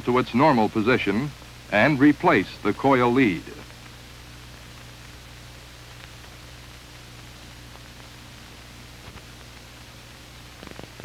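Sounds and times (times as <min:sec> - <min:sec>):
film soundtrack hiss: 0:00.0 - 0:11.0
low electrical hum: 0:00.0 - 0:11.0
faint clicks: 0:05.9 - 0:06.4.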